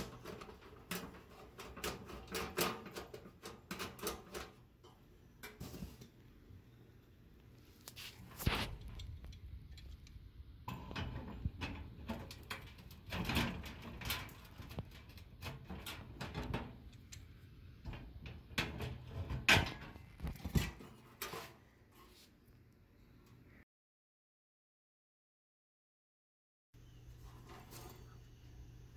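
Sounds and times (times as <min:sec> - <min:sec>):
grate rods clattering on metal: 0:00.0 - 0:06.0, 0:10.7 - 0:16.9.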